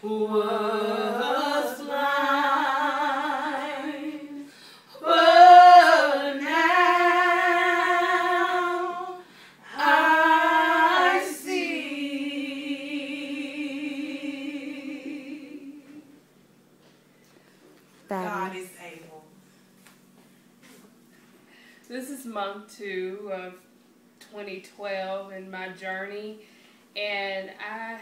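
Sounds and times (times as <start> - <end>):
women singing a cappella: 0.0 - 16.2, 27.0 - 28.0.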